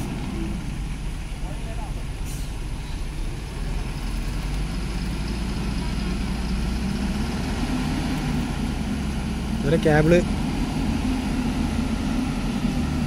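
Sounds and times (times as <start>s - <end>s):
crane diesel engine running: 0.0s - 13.0s
short hiss: 2.2s - 3.0s.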